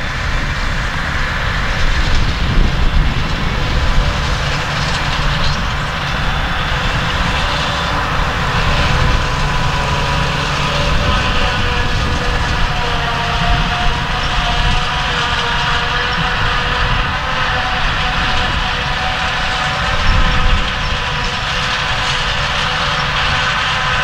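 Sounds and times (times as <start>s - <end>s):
tractor engines: 0.0s - 24.0s
forage harvester chopping grass: 0.1s - 24.0s.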